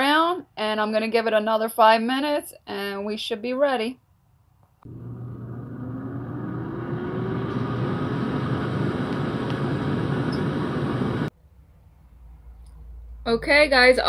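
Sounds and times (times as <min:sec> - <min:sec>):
air fryer fan whine: 0:04.9 - 0:11.3
low hum: 0:04.9 - 0:11.3.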